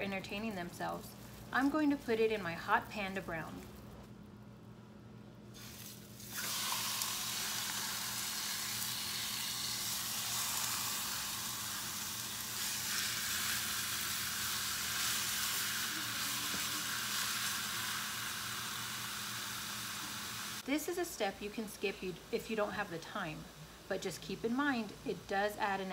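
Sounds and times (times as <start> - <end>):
pork sizzling in a hot pan: 5.5 - 20.6.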